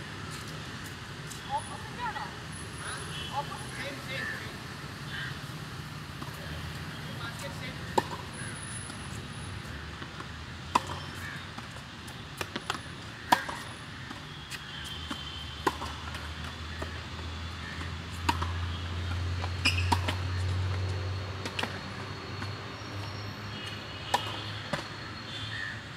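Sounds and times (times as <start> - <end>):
tennis balls struck and bouncing: 7.4 - 25.0.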